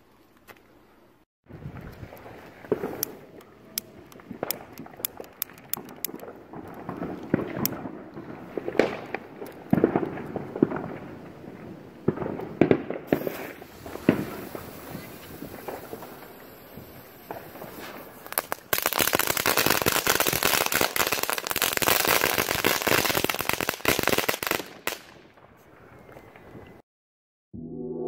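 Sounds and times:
firecrackers popping and cracking: 0:02.0 - 0:25.4
low rumble: 0:27.6 - 0:28.0.

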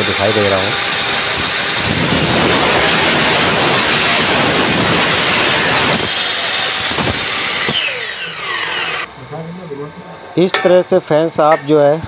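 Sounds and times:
miter saw cutting metal: 0:00.0 - 0:09.1
saw blade running freely: 0:00.0 - 0:09.1.

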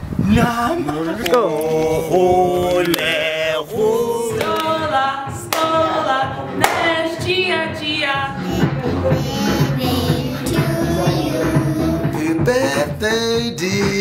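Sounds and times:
voices singing unaccompanied: 0:00.2 - 0:14.0
hand claps: 0:04.4 - 0:04.8, 0:05.5 - 0:05.7, 0:06.6 - 0:06.8.

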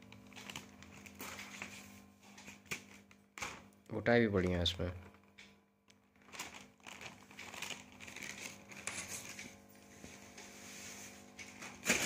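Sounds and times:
paper kites rustling and crinkling: 0:00.2 - 0:03.6, 0:06.0 - 0:12.0.

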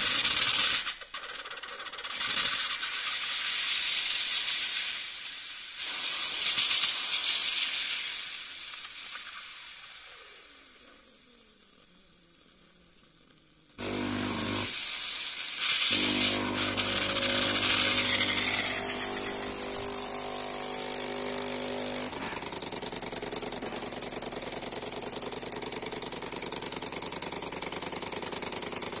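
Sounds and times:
coffee grinder: 0:00.0 - 0:05.1, 0:13.8 - 0:29.0
water pump buzzing: 0:13.8 - 0:14.8, 0:15.8 - 0:29.0.

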